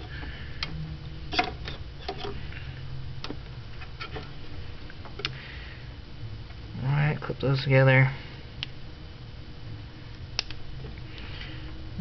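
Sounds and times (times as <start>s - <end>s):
steady low hum: 0.0s - 12.0s
plastic connectors clicking: 10.4s - 10.6s.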